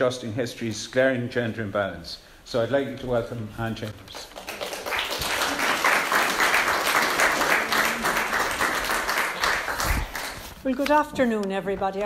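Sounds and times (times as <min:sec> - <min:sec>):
audience applause: 0:04.2 - 0:10.5.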